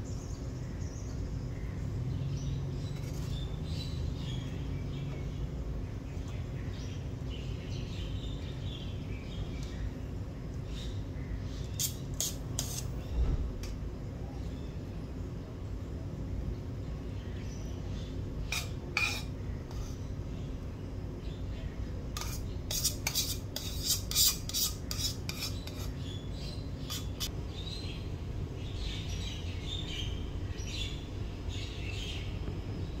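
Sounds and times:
steady low hum: 0.0 - 33.0
metal spoon scraping cookware: 11.8 - 12.9, 18.5 - 20.0, 22.2 - 26.0, 26.8 - 27.3.

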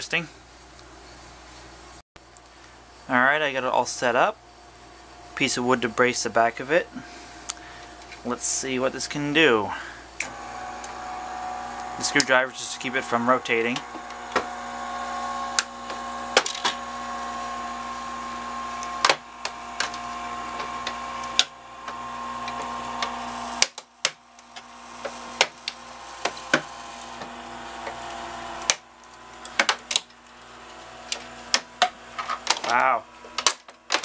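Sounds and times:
motor humming: 9.8 - 34.0
sharp cracks of frame: 22.5 - 32.7, 33.3 - 34.0.

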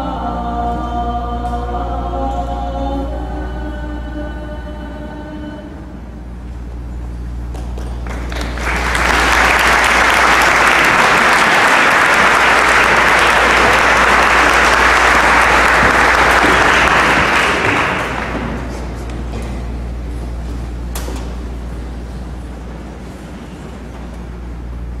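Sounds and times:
audience applauding: 7.6 - 19.0.

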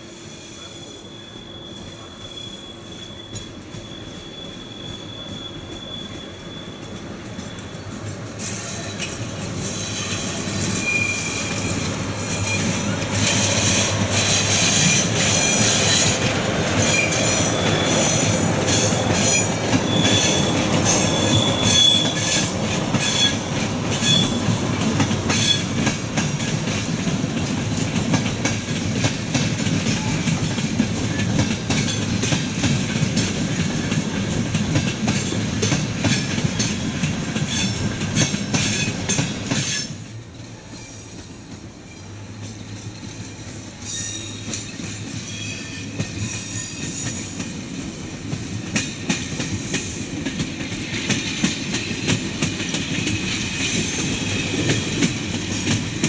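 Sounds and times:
train rumbling: 0.0 - 56.0
high wheel squeals: 0.1 - 24.6, 25.3 - 26.5, 35.1 - 41.2, 41.8 - 47.4.

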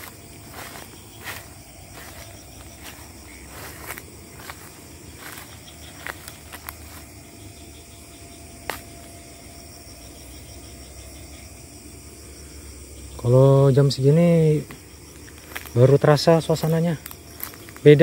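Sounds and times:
footsteps on leafy forest ground: 0.0 - 10.6, 14.5 - 18.0
crickets chirping: 0.0 - 18.0
twig snap: 8.6 - 9.0, 14.6 - 15.8, 16.6 - 17.9.

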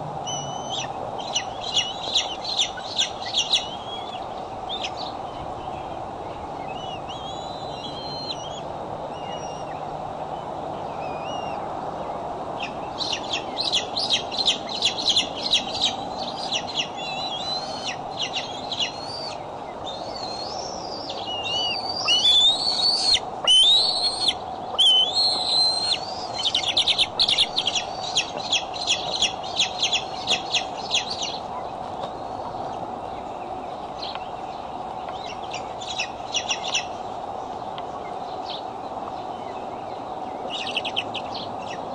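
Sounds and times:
eagle squealing whistles: 0.3 - 2.0, 21.3 - 26.3
eagles chittering: 20.0 - 31.6.

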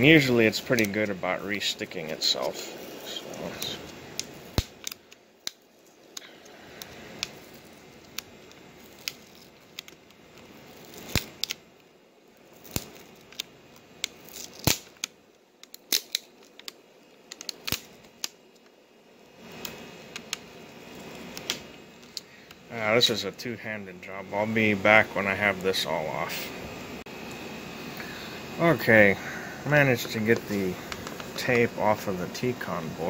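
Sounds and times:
plastic film peeling and crackling: 0.1 - 18.8.

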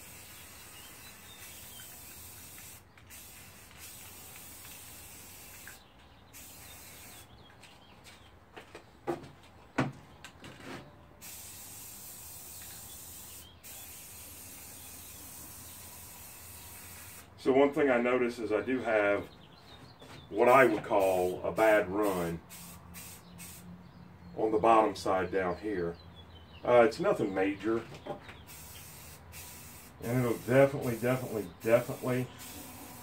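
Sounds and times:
aerosol spray can hissing: 0.0 - 5.8, 6.4 - 7.3, 11.2 - 17.3, 22.0 - 23.6, 28.5 - 33.0.

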